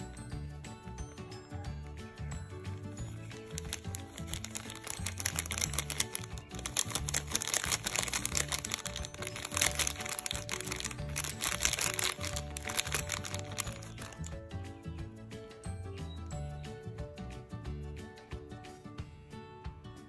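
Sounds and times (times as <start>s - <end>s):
plastic sachet crinkling: 2.8s - 14.3s.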